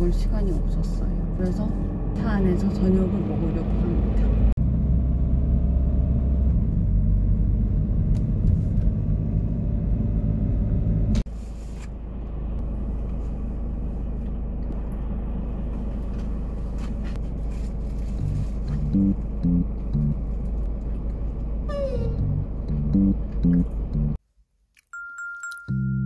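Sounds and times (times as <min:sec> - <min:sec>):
car cabin rumble: 0:06.4 - 0:24.2.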